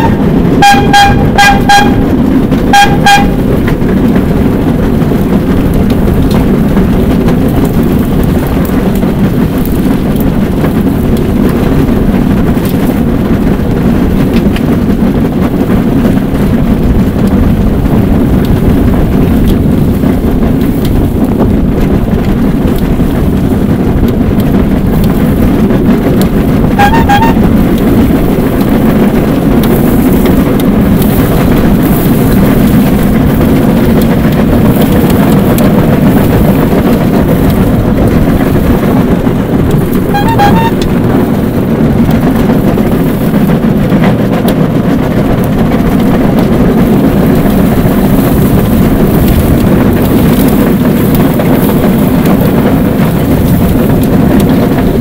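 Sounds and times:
rail bike rumbling on rails: 0.0s - 55.0s
short high beeps: 26.8s - 27.4s, 40.2s - 40.8s.

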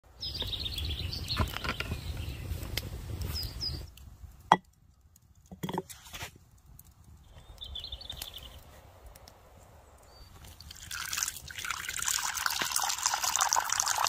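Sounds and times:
small birds chirping: 0.1s - 4.0s, 7.1s - 8.9s, 9.5s - 10.9s
mug knocking on wooden stump: 5.5s - 5.9s.

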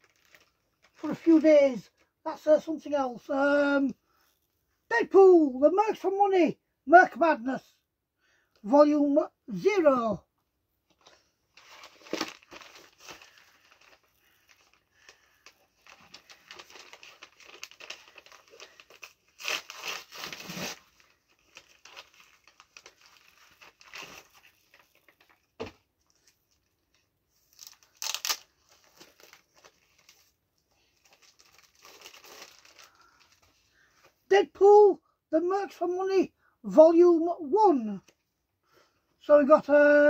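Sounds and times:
packaging crinkling and tearing: 0.0s - 2.1s, 10.9s - 33.6s.

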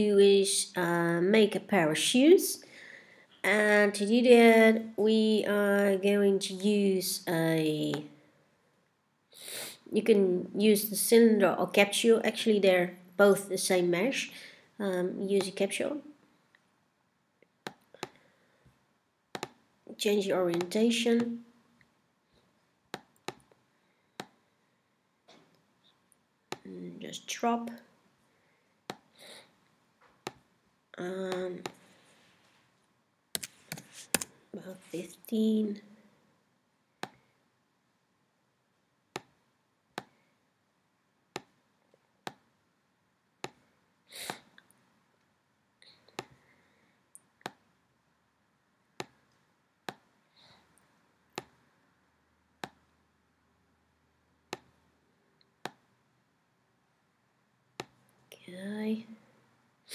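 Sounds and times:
person sniffing: 9.4s - 9.9s, 44.1s - 44.5s
computer mouse clicks: 19.3s - 19.6s, 20.5s - 21.3s, 33.4s - 34.3s, 54.5s - 54.8s.

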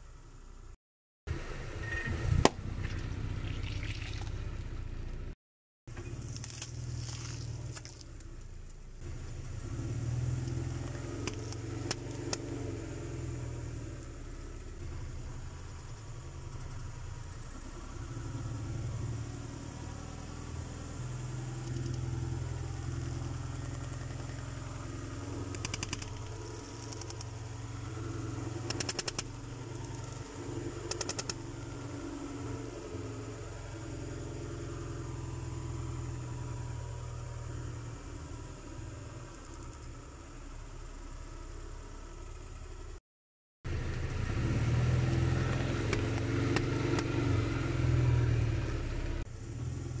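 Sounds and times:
car engine humming: 1.3s - 43.0s.

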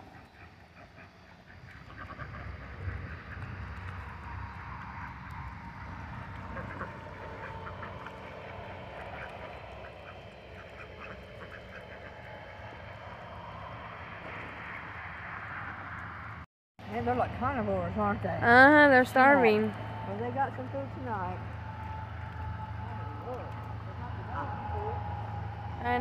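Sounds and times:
ducks quacking: 0.0s - 16.0s
steady low rumble: 0.0s - 26.0s.

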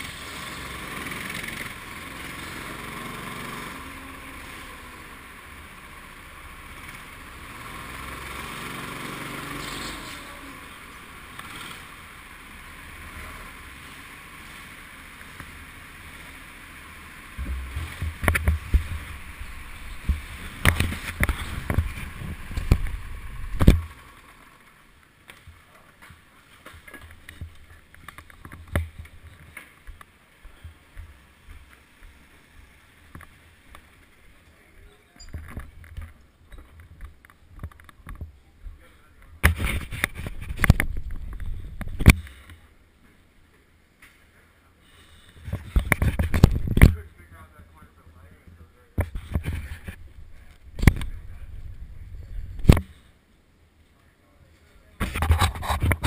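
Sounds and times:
go-kart running: 0.0s - 29.9s
loud knocks and thumps: 17.4s - 19.2s.

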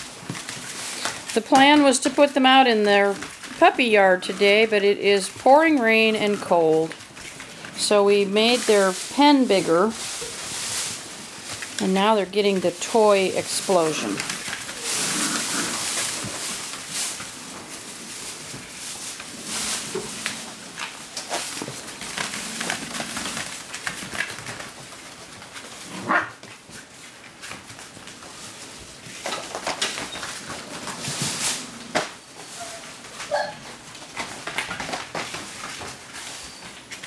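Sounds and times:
puppies playing on hard floor: 0.0s - 37.0s.

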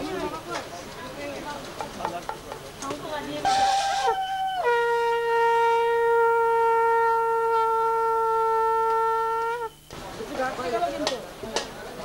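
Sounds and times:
conch shell blown: 3.4s - 9.9s.

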